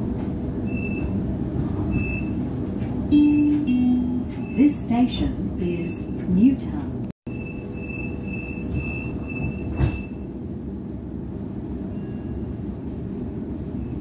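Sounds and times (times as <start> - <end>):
train hum: 0.0 - 14.0
high-pitched warning beeps: 3.1 - 4.8, 7.3 - 10.2
train doors shutting thud: 7.9 - 10.3.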